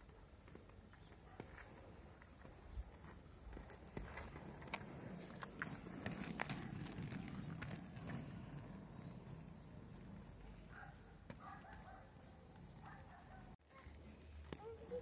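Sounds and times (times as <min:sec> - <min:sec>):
skate wheels rolling on asphalt: 0:00.0 - 0:15.0
skates clacking on road: 0:00.0 - 0:15.0.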